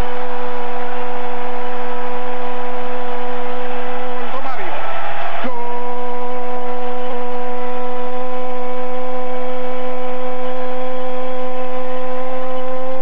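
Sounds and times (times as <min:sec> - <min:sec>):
crowd noise: 0:00.0 - 0:13.0
commentator shouting goal: 0:04.0 - 0:05.6.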